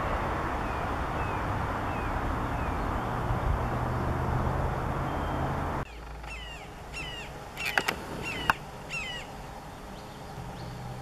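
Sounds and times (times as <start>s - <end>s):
hawk calling: 5.9s - 9.4s
sharp clicks: 7.6s - 8.6s.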